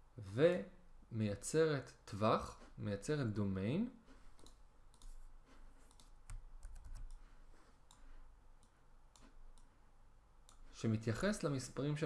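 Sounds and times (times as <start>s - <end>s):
computer mouse clicking: 4.4s - 5.2s, 5.8s - 7.2s, 8.6s - 9.7s
keyboard keys clicking: 5.9s - 7.2s.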